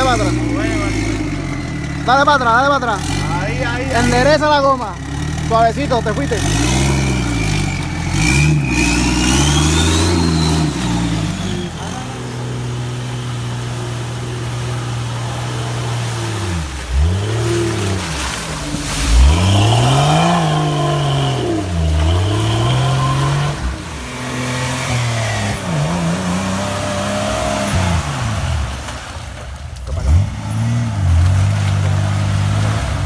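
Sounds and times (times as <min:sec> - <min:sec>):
tyres driving through mud: 0:00.0 - 0:33.0
engine revving hard: 0:05.5 - 0:12.5, 0:15.1 - 0:28.7.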